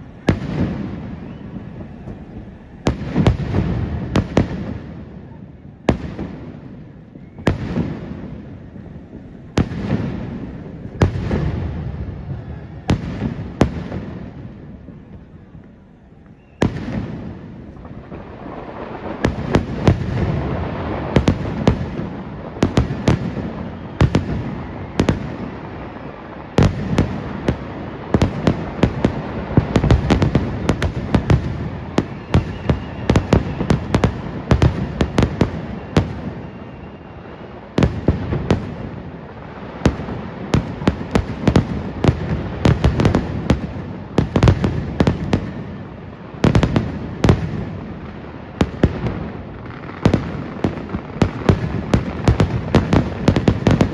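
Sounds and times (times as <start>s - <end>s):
continuous rumble: 0.0s - 36.2s
fireworks bursting and crackling: 0.0s - 53.9s.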